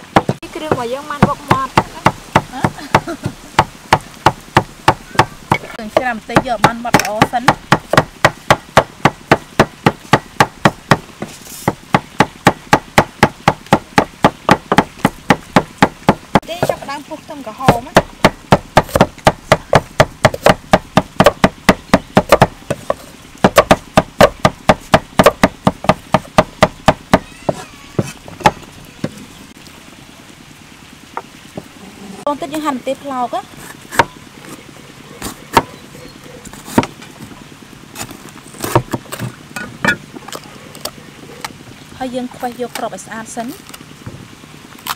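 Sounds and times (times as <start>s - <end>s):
cleaver chopping on wooden block: 0.1s - 3.0s, 3.6s - 16.9s, 17.6s - 29.2s, 33.9s - 34.2s, 36.6s - 37.0s, 38.0s - 40.0s.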